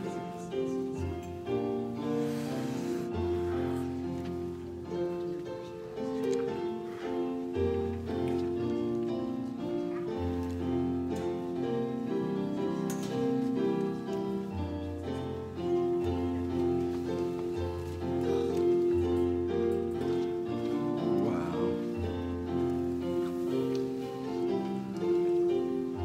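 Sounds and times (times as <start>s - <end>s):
slow piano instrumental music: 0.0s - 26.0s.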